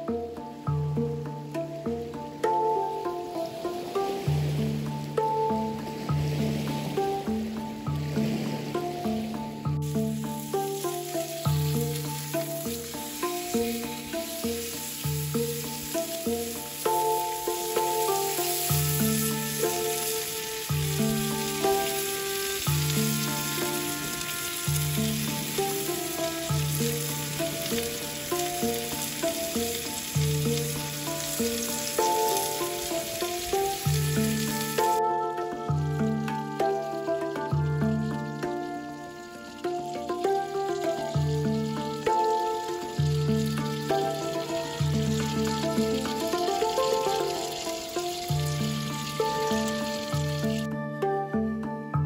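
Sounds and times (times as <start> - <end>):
instrumental background music: 0.0 - 52.0
steaks sizzling in a skillet: 9.9 - 35.0, 39.2 - 50.6.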